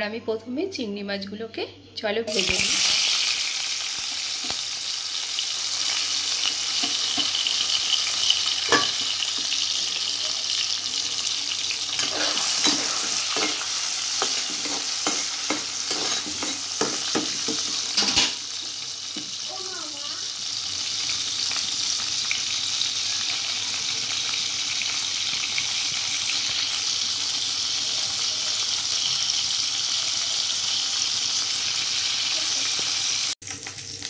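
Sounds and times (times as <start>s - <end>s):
prawns sizzling in hot oil: 2.3s - 34.0s
spatula scraping a pan: 11.9s - 18.2s.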